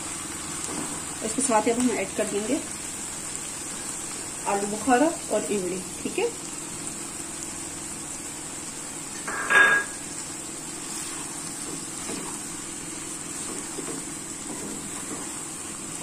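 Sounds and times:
utensil knocking on pan: 9.3s - 10.0s.

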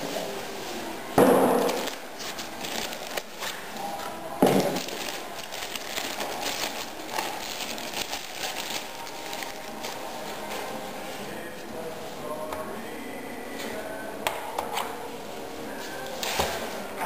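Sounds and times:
plastic bag crinkling: 1.6s - 10.5s.

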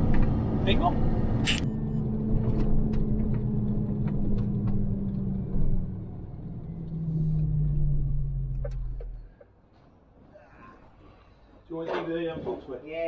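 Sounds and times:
truck diesel engine rumbling: 0.0s - 10.1s.

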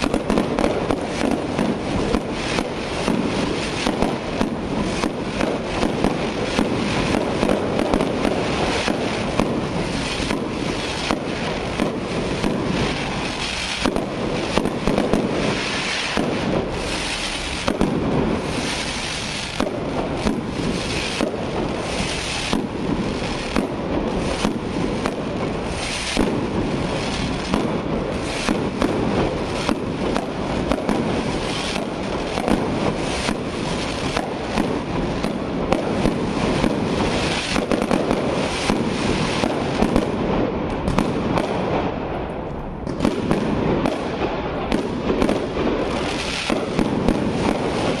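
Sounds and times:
fireworks bangs: 0.0s - 48.0s
fireworks crackle and hiss: 0.0s - 48.0s.

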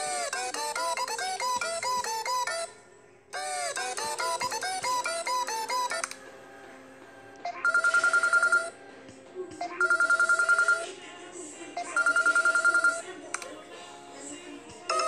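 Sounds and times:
electronic phone ringtone trilling: 7.5s - 8.8s, 9.6s - 10.9s, 11.8s - 13.0s.

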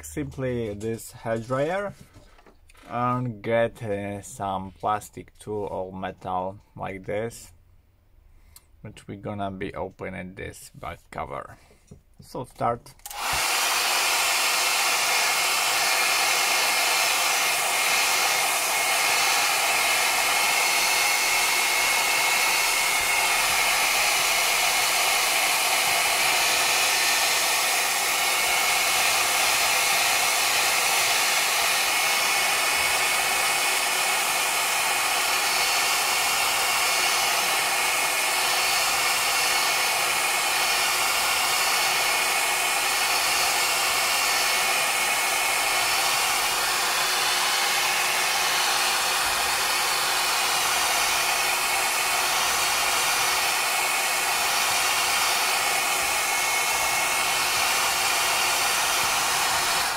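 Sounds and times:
hair dryer blowing: 13.0s - 59.9s.

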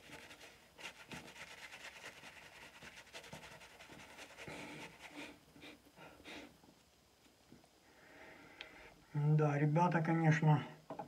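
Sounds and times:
shaving brush swishing lather: 0.0s - 5.4s.

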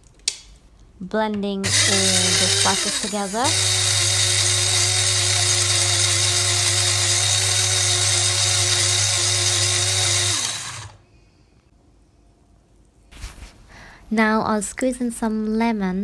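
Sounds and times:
electric spice grinder whining: 1.6s - 11.0s.

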